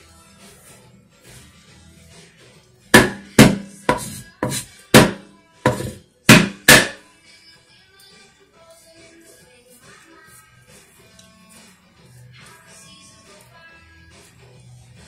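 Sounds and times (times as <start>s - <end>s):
grater knocking on wooden board: 3.0s - 6.9s.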